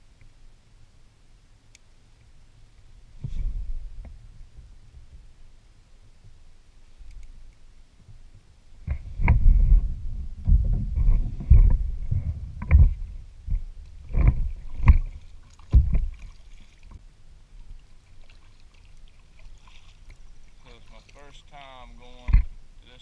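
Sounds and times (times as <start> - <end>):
kayak paddle strokes splashing: 12.9 - 22.6.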